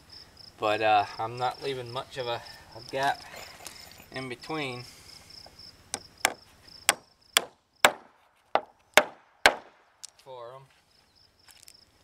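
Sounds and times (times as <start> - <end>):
hammer striking nail into wood: 5.9 - 9.8.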